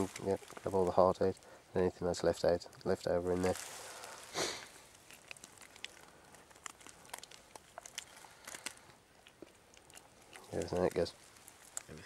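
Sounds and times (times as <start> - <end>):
faint crinkling: 0.0 - 12.0
small clicks and ticks: 4.8 - 12.0.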